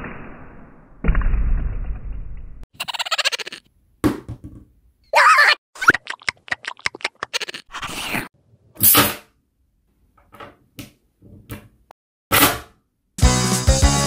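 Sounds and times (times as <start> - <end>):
short voice-like cry: 5.1 - 5.6.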